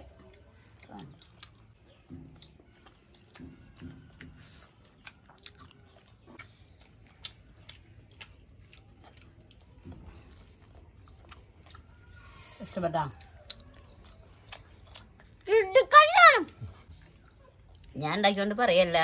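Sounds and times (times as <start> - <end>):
faint chewing: 0.0 - 19.0
lip smacking clicks: 0.1 - 12.2, 13.1 - 15.5.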